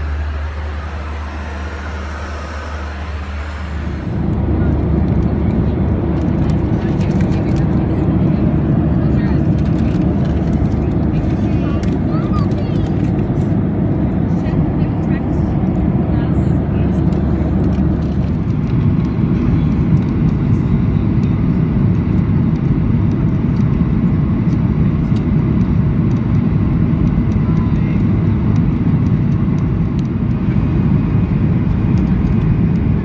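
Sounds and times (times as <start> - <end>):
rushing air: 0.0 - 5.1
jet engines rumbling: 0.0 - 33.0.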